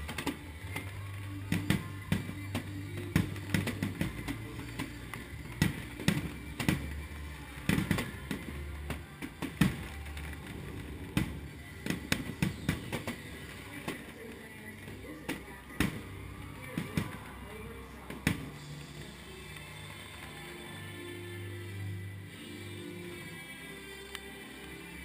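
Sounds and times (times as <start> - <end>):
firework bangs and crackles: 0.0 - 17.4
background music with bass line: 0.0 - 25.0.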